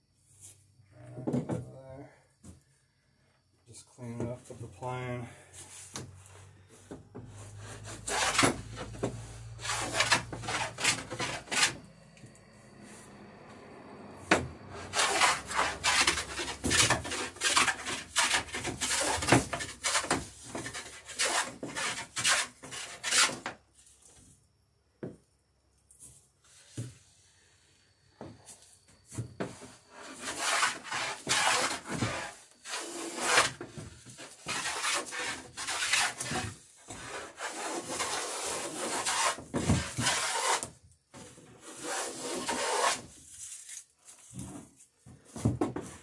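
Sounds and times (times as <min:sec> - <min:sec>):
hand plane cutting wood: 0:07.2 - 0:11.9, 0:14.3 - 0:23.5, 0:29.9 - 0:40.8, 0:41.5 - 0:43.1.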